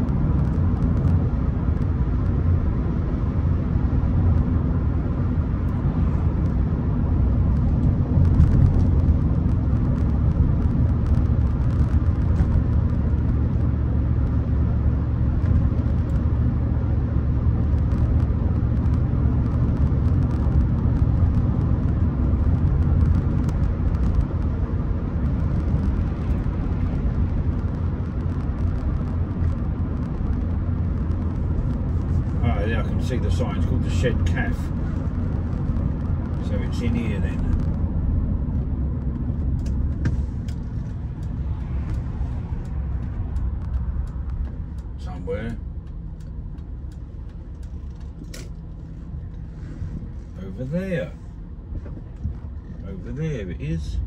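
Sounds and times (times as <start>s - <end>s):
car engine and road rumble: 0.0s - 54.0s.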